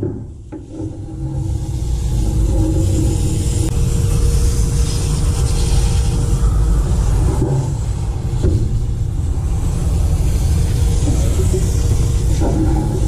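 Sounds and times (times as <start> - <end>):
steady low rumble: 0.0 - 13.0
pump sprayer hissing: 0.5 - 7.2, 8.6 - 13.0.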